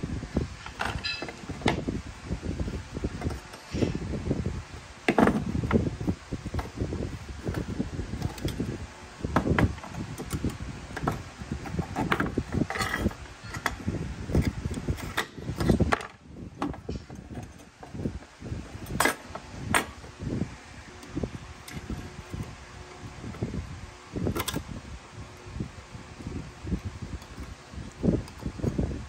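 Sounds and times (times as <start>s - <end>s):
tools knocking and rattling: 0.6s - 1.8s, 9.3s - 18.0s.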